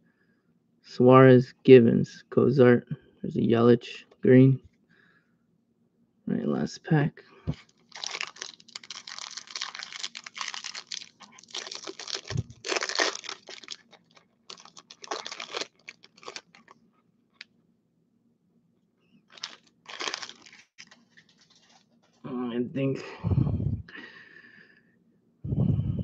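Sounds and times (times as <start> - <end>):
foil wrapper crinkling: 7.6 - 16.8, 19.3 - 21.9.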